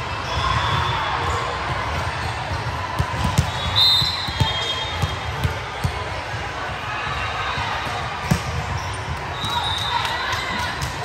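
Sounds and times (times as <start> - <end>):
crowd chatter: 0.0 - 11.0
volleyball impacts: 0.7 - 6.2, 7.8 - 9.6.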